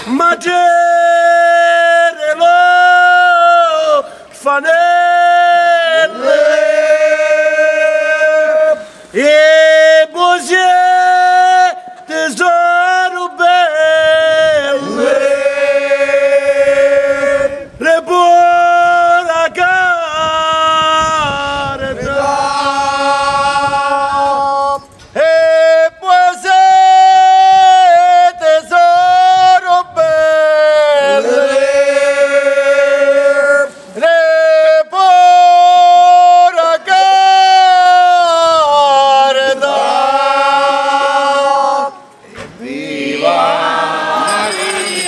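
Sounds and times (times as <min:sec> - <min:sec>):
men singing a hymn unaccompanied: 0:00.1 - 0:45.0
singers breathing: 0:04.0 - 0:04.4, 0:08.8 - 0:09.2, 0:33.7 - 0:34.0.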